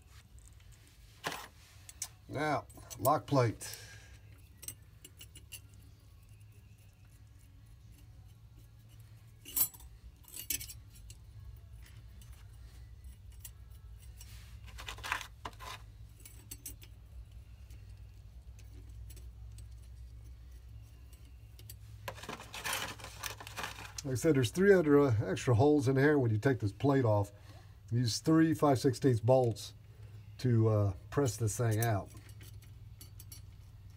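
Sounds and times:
small steel parts clinking: 0.4s - 24.1s, 31.3s - 33.9s.

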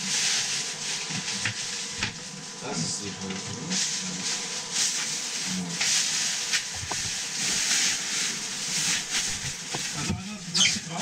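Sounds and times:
plastic bags rustling: 3.9s - 11.0s.

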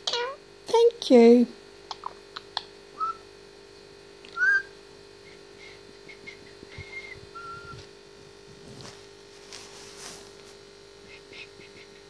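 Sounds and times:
parakeet whistling: 3.0s - 3.2s, 4.4s - 4.7s, 6.2s - 7.8s.

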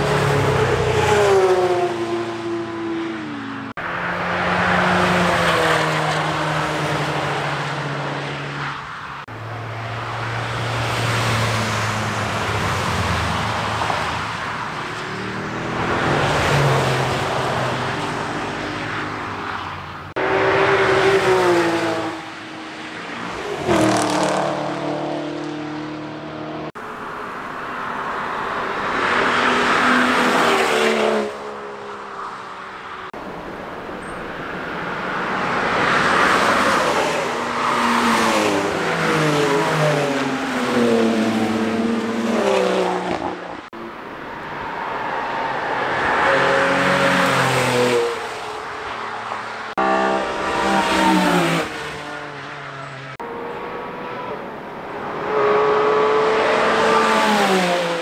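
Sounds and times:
race cars passing at speed: 0.0s - 58.0s.

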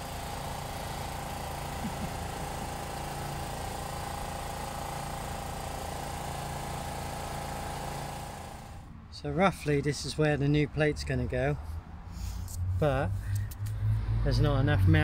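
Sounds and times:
engine idling drone: 0.0s - 8.8s.

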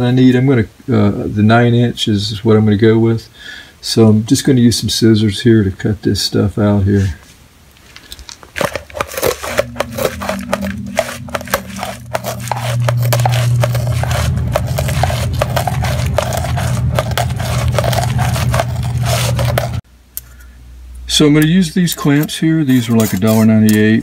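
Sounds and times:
steady low hum: 6.9s - 24.0s
scissors cutting gritty sheet: 8.1s - 19.8s, 21.9s - 24.0s.

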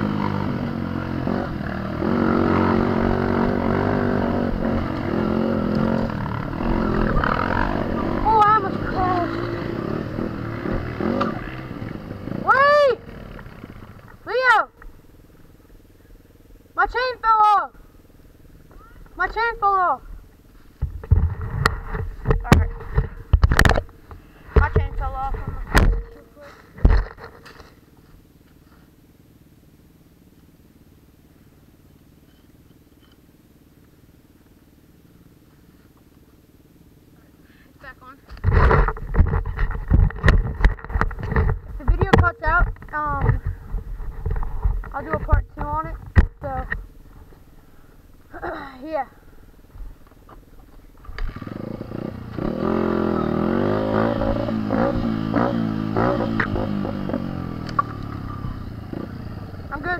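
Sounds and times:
dirt bike engine revving: 0.0s - 14.6s, 51.0s - 59.9s
dirt bike engine idling: 0.0s - 59.9s
bike knocking and rattling: 20.7s - 28.9s, 38.3s - 47.5s.

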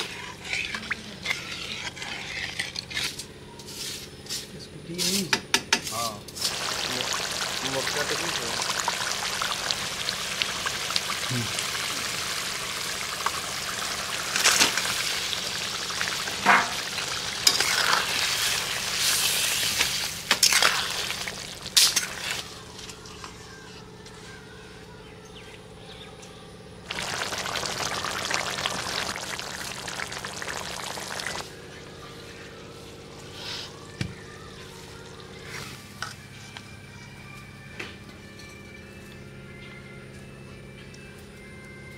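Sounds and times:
curry bubbling and sizzling: 6.4s - 22.6s, 26.9s - 31.4s.

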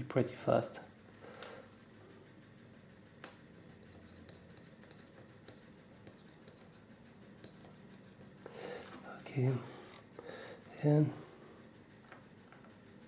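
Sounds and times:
soldering iron scratching: 3.6s - 10.0s.

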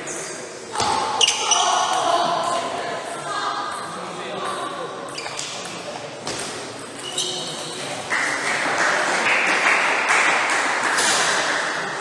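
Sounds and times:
spectators applauding: 8.1s - 11.8s.

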